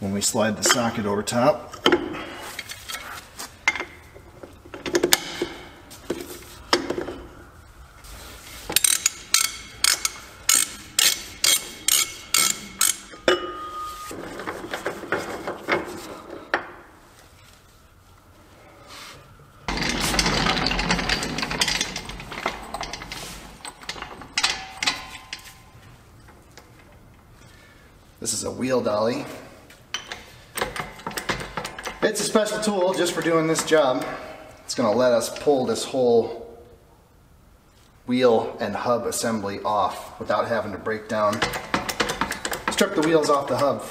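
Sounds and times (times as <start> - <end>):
metal rattling and scraping: 8.0 - 16.5, 19.6 - 27.6, 29.2 - 34.4, 41.1 - 43.9
ratchet clicking: 8.8 - 13.2.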